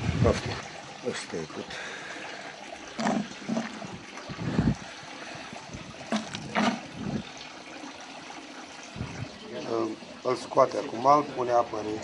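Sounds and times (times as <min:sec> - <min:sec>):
butter churn sloshing thumps: 0:02.8 - 0:07.5.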